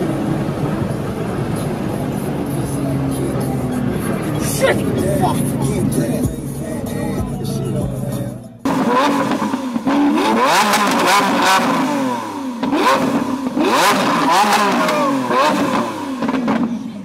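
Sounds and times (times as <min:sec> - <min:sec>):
car engine revving hard: 0:08.7 - 0:17.0.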